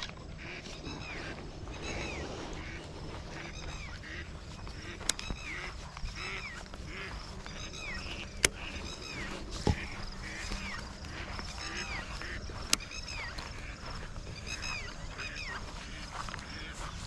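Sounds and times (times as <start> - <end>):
bird calling: 0.0 - 17.0
steady outdoor hiss: 0.0 - 17.0.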